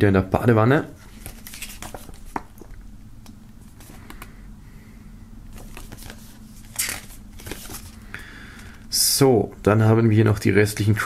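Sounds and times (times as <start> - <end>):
paper pages rustling: 1.0 - 2.7, 5.5 - 8.8.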